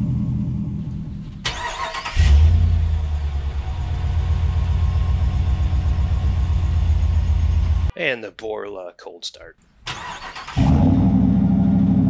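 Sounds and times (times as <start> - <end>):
engine starting and idling: 0.6 - 7.9, 9.8 - 12.0.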